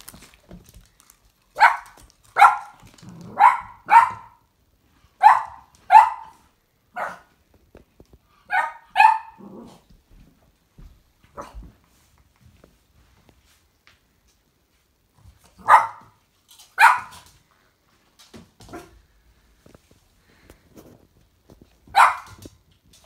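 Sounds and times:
puppy barking: 0:01.6 - 0:04.4, 0:05.2 - 0:07.3, 0:08.5 - 0:09.4, 0:15.6 - 0:16.2, 0:16.8 - 0:17.2, 0:21.9 - 0:22.4.

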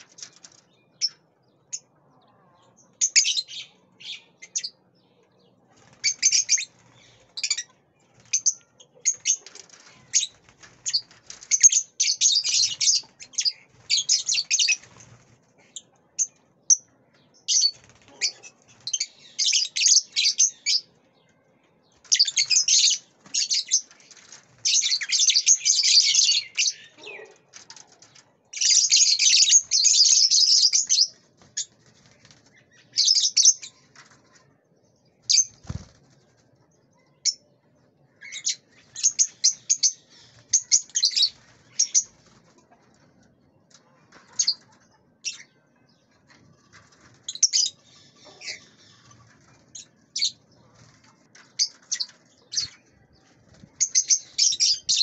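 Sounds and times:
lovebirds chattering shrilly: 0:53.7 - 0:55.0.

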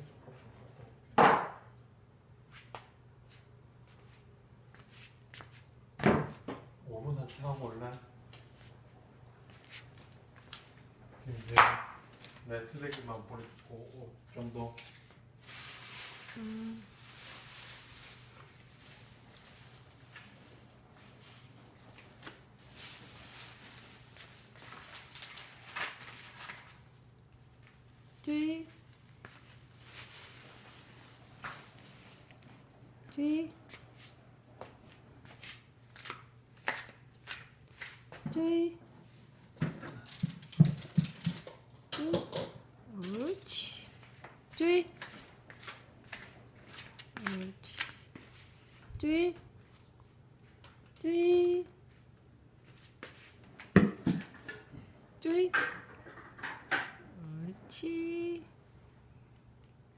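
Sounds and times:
dish clatter: 0:55.6 - 0:57.0.

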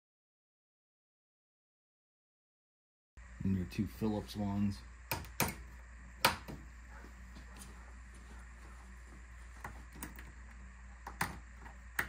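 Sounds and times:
low steady hum: 0:03.2 - 0:12.0.

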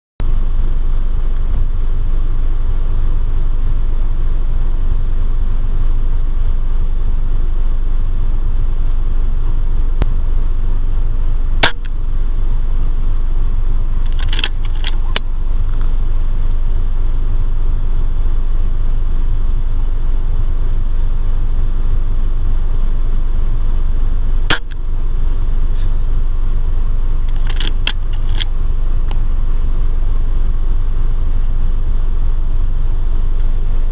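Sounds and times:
vehicle engine rumble: 0:00.2 - 0:33.9
air rifle shot: 0:11.6 - 0:11.9.

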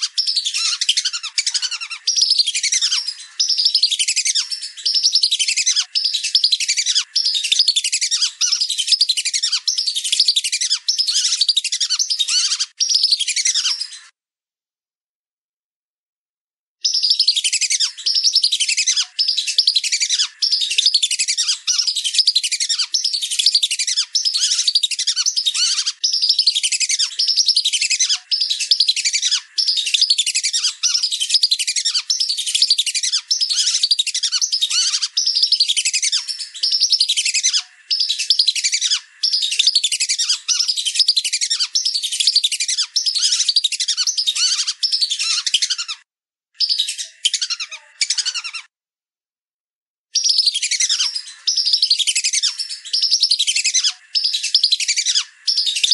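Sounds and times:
ducks whistling calls: 0:00.0 - 0:14.0, 0:16.9 - 0:46.0.

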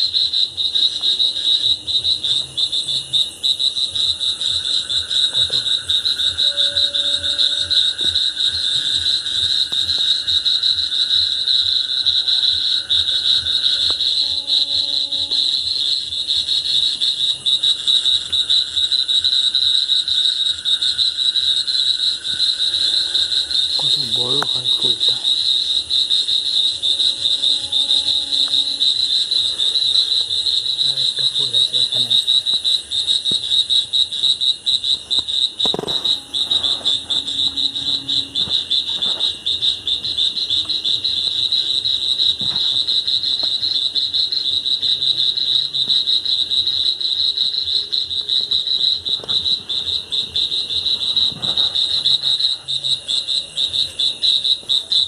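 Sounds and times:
high pulsing animal trill: 0:04.0 - 0:09.7, 0:22.7 - 0:32.4, 0:35.6 - 0:40.5.

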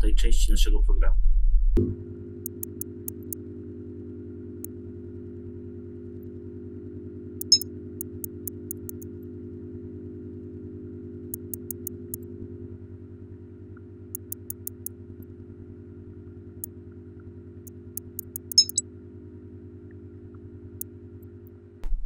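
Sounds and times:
computer mouse clicking: 0:02.5 - 0:03.4, 0:07.4 - 0:09.0, 0:11.4 - 0:12.2, 0:14.2 - 0:14.9, 0:18.0 - 0:18.8
low hum: 0:17.7 - 0:18.8.

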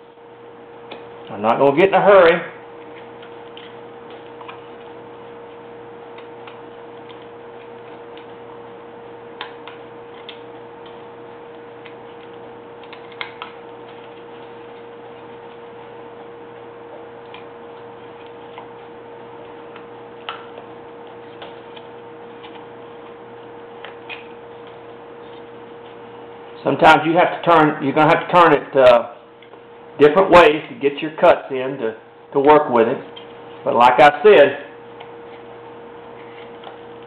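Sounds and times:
steady hum: 0:00.0 - 0:37.0
knife snapping wood chips: 0:11.8 - 0:13.8.

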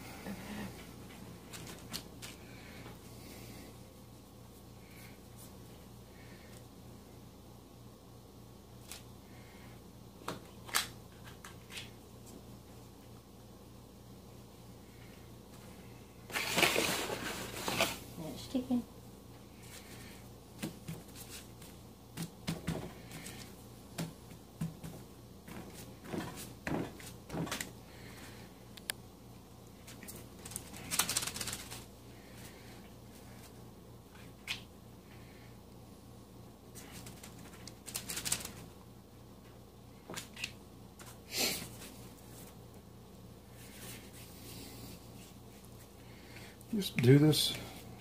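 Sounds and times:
parchment paper rustling: 0:01.1 - 0:02.8, 0:16.3 - 0:18.0, 0:19.6 - 0:28.4, 0:29.8 - 0:34.6, 0:36.7 - 0:38.8
paper rustling: 0:01.4 - 0:02.4, 0:16.3 - 0:18.0, 0:29.8 - 0:31.9, 0:36.8 - 0:38.7.

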